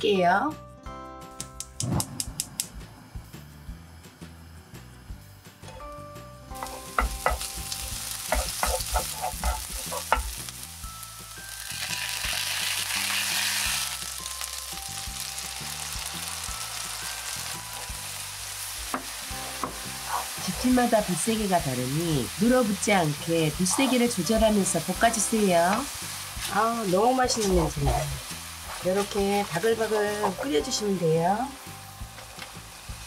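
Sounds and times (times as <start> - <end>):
onions sizzling in hot oil: 3.2 - 33.0
spatula scraping a pan: 8.3 - 10.3.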